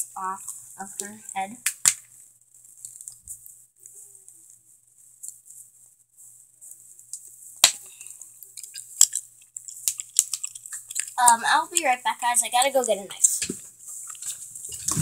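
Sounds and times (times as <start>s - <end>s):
plastic packaging crackling: 7.6s - 15.0s.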